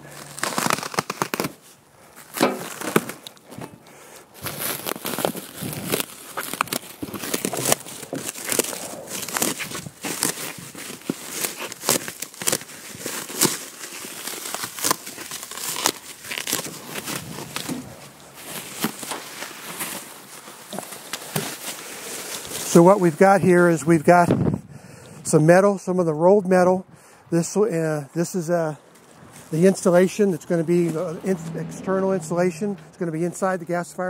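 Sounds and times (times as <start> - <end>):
plastic wrap crinkling and tearing: 0.0 - 23.3.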